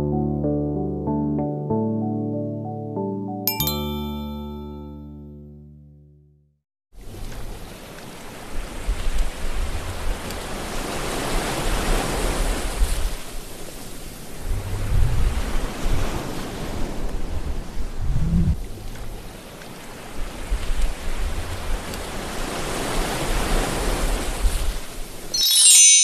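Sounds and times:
ocean waves washing in: 0:07.0 - 0:25.7.

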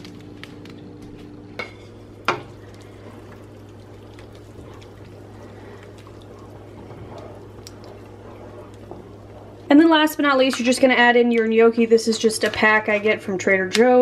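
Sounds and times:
spoon stirring sloshing soup: 0:01.6 - 0:09.7.

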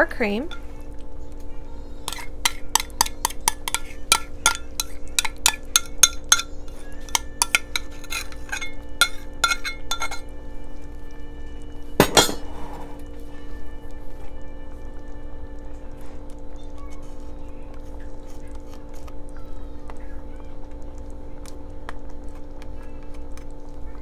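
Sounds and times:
spoon clinking against glass: 0:02.1 - 0:10.3, 0:12.0 - 0:12.5
loud knock and scrape: 0:12.0 - 0:13.0.

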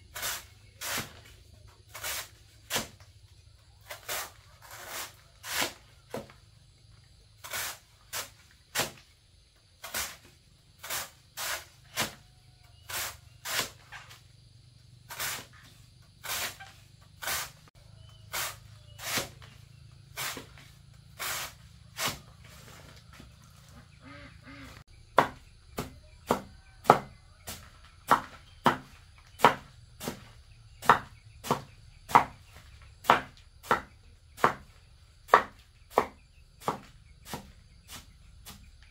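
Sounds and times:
blade chopping: 0:01.9 - 0:03.0, 0:07.4 - 0:09.0, 0:09.8 - 0:12.2, 0:18.2 - 0:22.7, 0:25.2 - 0:38.7.

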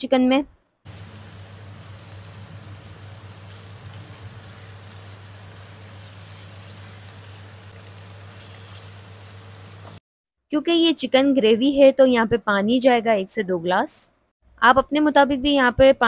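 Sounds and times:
food sizzling in hot oil: 0:00.9 - 0:10.0.

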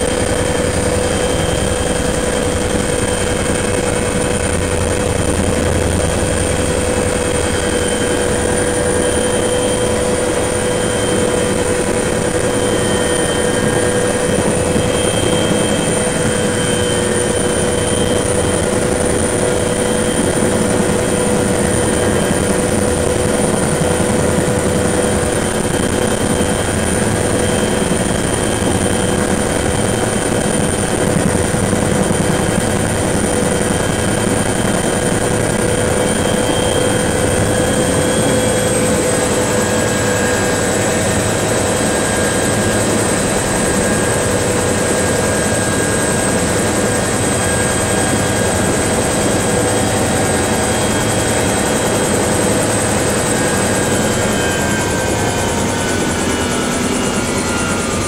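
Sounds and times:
helicopter turbine whine and rotor: 0:00.0 - 0:58.0.

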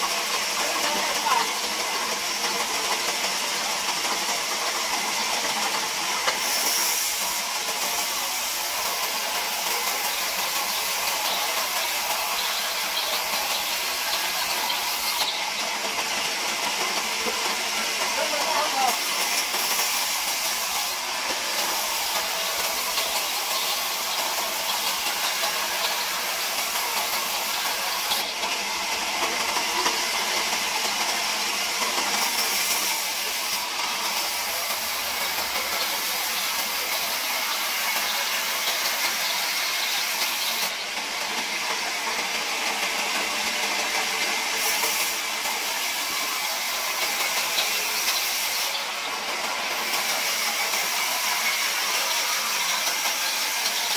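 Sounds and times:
band saw cutting wood: 0:43.8 - 0:53.9.

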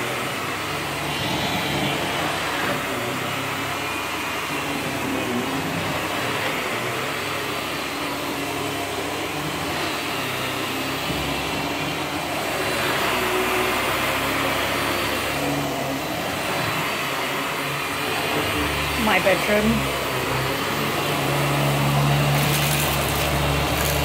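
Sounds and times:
vacuum cleaner running on carpet: 0:00.0 - 0:24.0.

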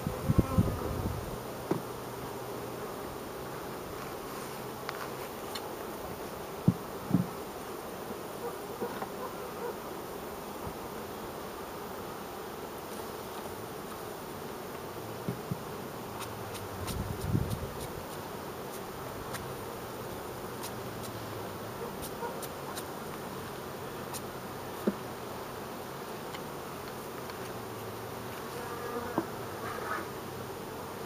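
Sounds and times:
bees buzzing: 0:00.0 - 0:31.0.

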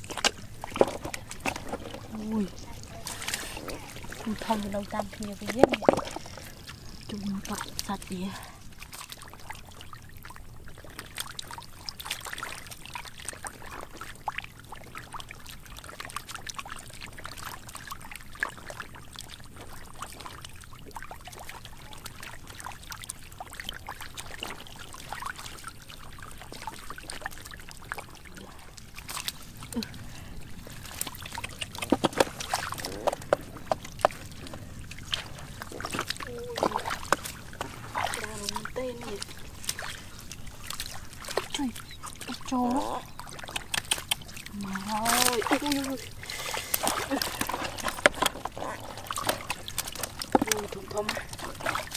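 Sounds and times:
fish flapping in water: 0:00.0 - 0:51.9
water splashing and trickling: 0:00.0 - 0:51.9.

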